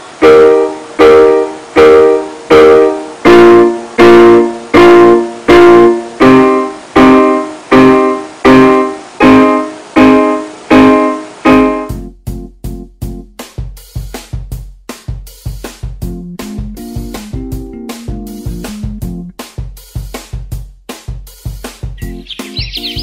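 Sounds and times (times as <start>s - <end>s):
piano chords: 0.0s - 13.3s, 16.0s - 19.4s, 22.0s - 23.0s.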